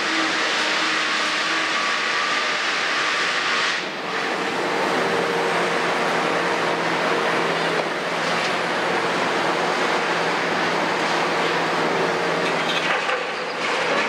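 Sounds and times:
excavator diesel engine under load: 4.0s - 14.0s.

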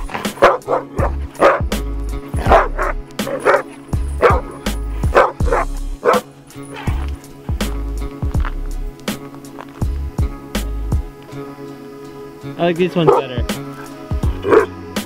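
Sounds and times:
dogs barking and yipping: 0.0s - 7.7s, 12.0s - 15.0s
music with heavy bass beat: 0.0s - 11.2s, 12.8s - 15.0s.

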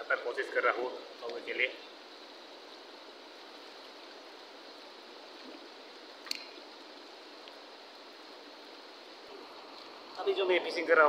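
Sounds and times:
sharp click: 6.2s - 6.5s.

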